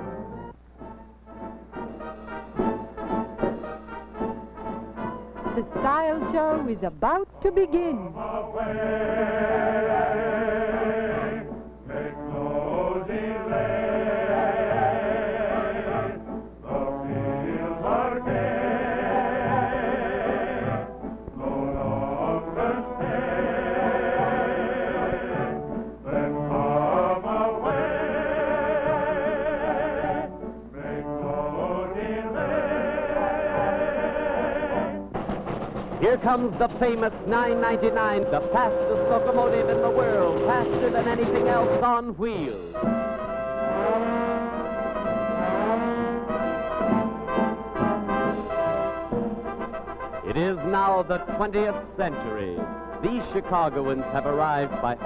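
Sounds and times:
instrumental accompaniment: 0:00.0 - 0:55.0
choir singing: 0:07.9 - 0:35.1, 0:36.2 - 0:41.9, 0:42.8 - 0:49.8.

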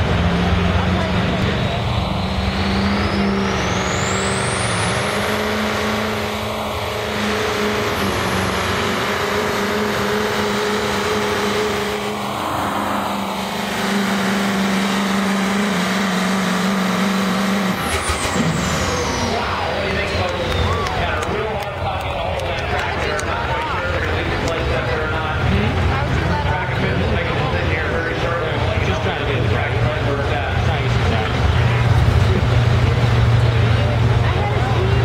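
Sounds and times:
diesel engine under load: 0:00.0 - 0:35.0.

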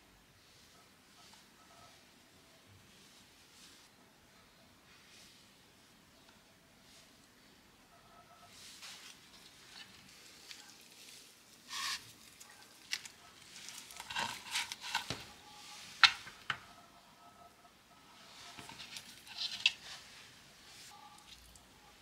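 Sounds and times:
bamboo mat rustling: 0:08.5 - 0:16.5, 0:18.2 - 0:21.5.

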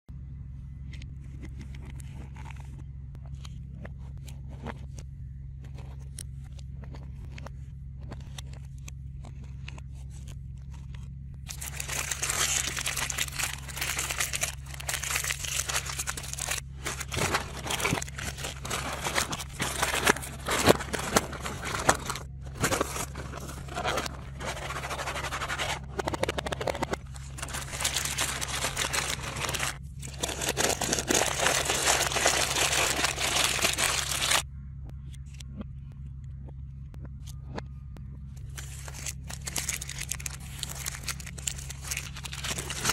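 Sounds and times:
steady low hum: 0:00.1 - 0:42.9
plastic wrappers crinkling: 0:11.4 - 0:34.4, 0:38.6 - 0:42.9.

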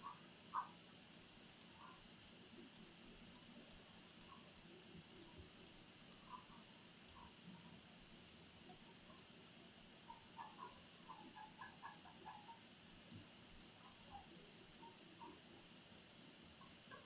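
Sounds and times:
faint computer mouse clicks: 0:02.6 - 0:04.4, 0:05.1 - 0:08.9, 0:10.1 - 0:13.9.

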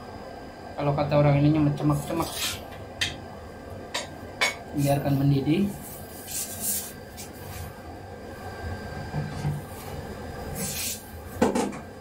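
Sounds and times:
sauce hissing and sizzling: 0:04.7 - 0:07.8, 0:09.6 - 0:11.4.

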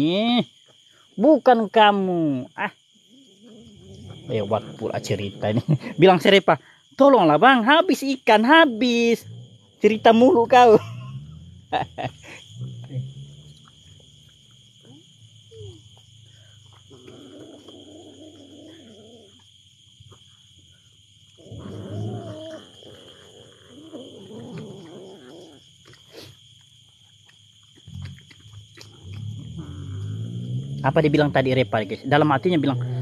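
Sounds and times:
cats growling: 0:03.1 - 0:06.0, 0:09.2 - 0:15.9, 0:16.6 - 0:19.5, 0:21.4 - 0:26.3, 0:27.9 - 0:33.0.

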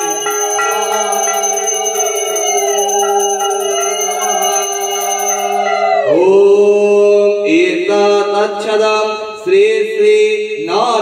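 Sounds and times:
hand bell ringing: 0:00.0 - 0:05.9
pitched drone: 0:00.0 - 0:06.4.

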